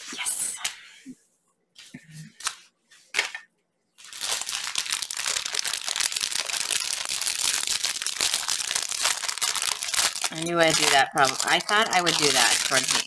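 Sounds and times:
plastic wrapping crinkling: 4.0s - 13.0s.

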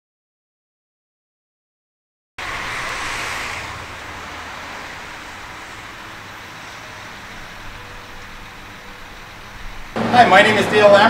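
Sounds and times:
road traffic hiss and hum: 2.4s - 11.0s.

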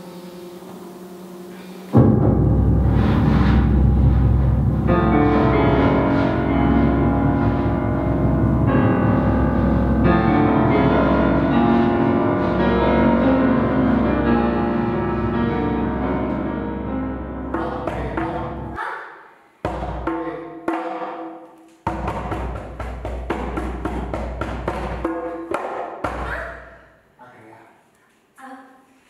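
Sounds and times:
low drone: 0.0s - 18.8s
piano chords: 0.0s - 18.8s, 21.8s - 26.8s.

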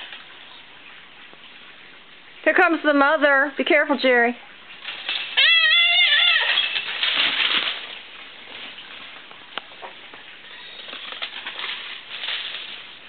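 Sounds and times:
brush and leaves rustling: 4.5s - 13.0s.

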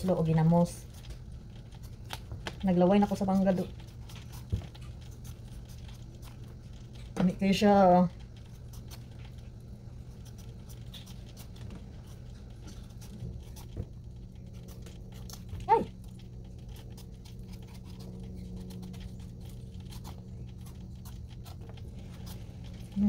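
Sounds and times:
knife paring fruit skin: 0.0s - 9.4s
low hum: 0.0s - 23.0s.

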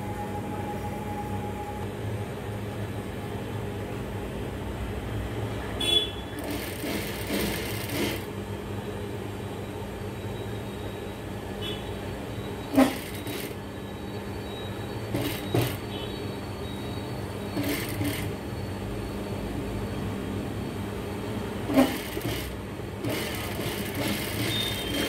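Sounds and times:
sewing machine motor hum: 6.4s - 8.3s, 12.7s - 13.6s, 15.1s - 15.8s, 17.6s - 18.3s, 21.7s - 25.0s
short bursts of stitching noise: 6.4s - 8.3s, 12.8s - 13.6s, 17.6s - 18.3s, 21.7s - 25.0s.

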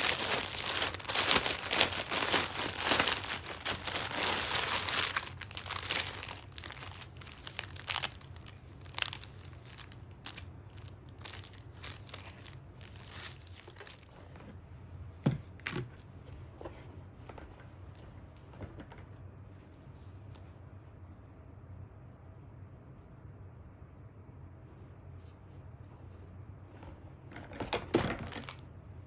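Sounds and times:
plastic packaging crinkling: 0.0s - 14.3s, 27.6s - 28.7s
fabric and tissue paper rustling: 0.0s - 14.8s.

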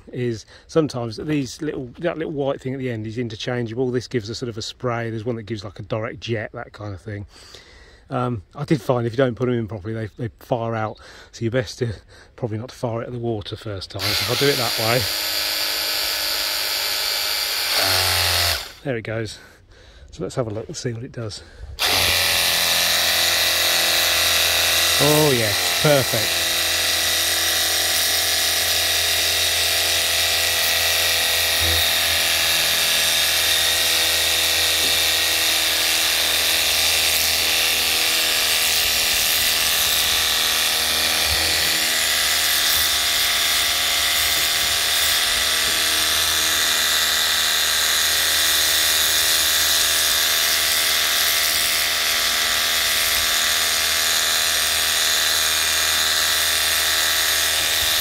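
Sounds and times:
pressure washer whine: 14.0s - 18.8s, 21.8s - 58.0s.

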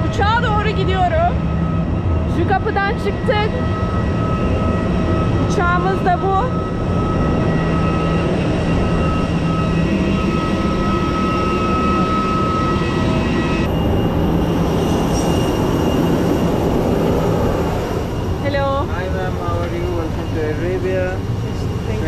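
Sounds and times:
jet aircraft rumble and whine: 0.0s - 22.0s.

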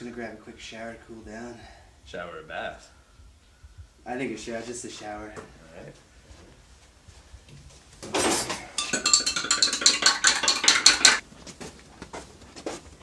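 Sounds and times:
rapid metallic clinking and clattering: 8.2s - 11.2s.

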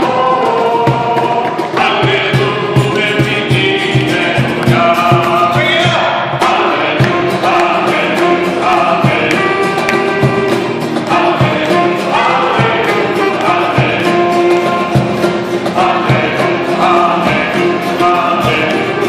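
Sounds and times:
group singing: 0.0s - 19.0s
saxophone: 0.0s - 19.0s
steady beat: 0.0s - 19.0s
cello: 6.4s - 19.0s.

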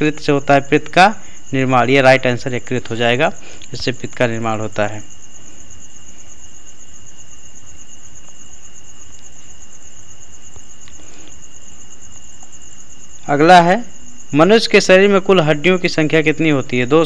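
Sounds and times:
background hiss: 0.0s - 17.0s
crickets trilling: 0.0s - 17.0s.

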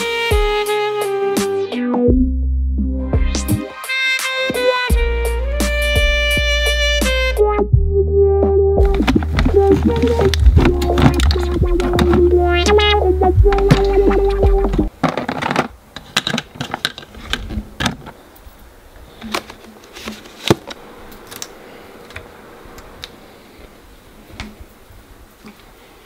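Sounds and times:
clicks of objects handled: 8.8s - 12.9s, 13.5s - 18.2s.

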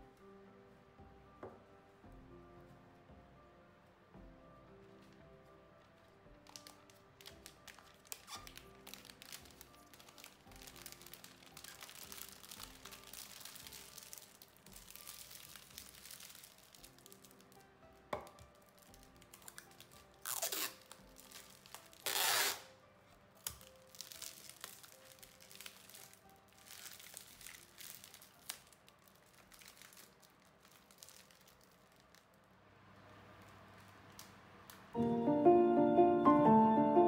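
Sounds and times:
plastic film crinkling: 4.8s - 32.6s
tape ripping off dispenser: 6.5s - 17.6s, 18.6s - 22.8s.

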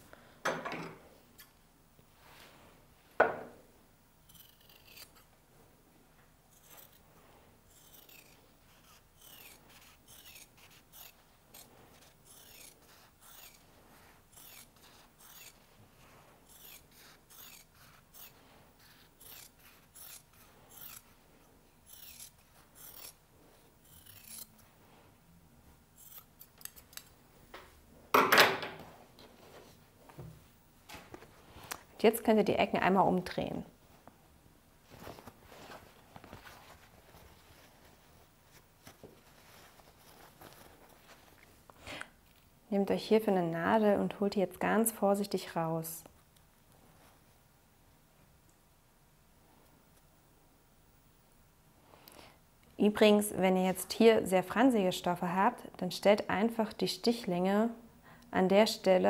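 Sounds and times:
knock: 3.2s - 3.5s
scissors snipping: 7.8s - 13.6s, 16.5s - 21.0s, 23.9s - 24.6s, 26.0s - 27.2s.

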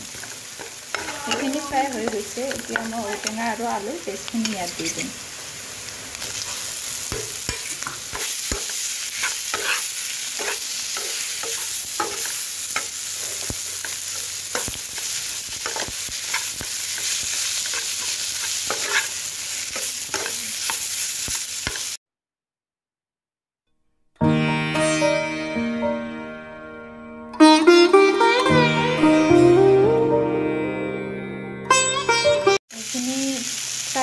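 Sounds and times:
food sizzling in oil: 0.0s - 22.0s, 32.7s - 34.0s
spatula scraping a pan: 0.1s - 5.2s, 6.2s - 22.0s.

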